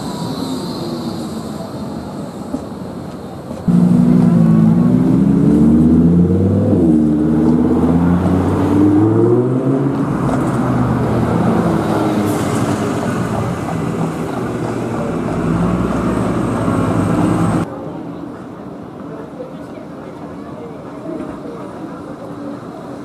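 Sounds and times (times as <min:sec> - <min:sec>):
bus engine accelerating: 0:00.0 - 0:18.2
road traffic noise: 0:00.0 - 0:23.0.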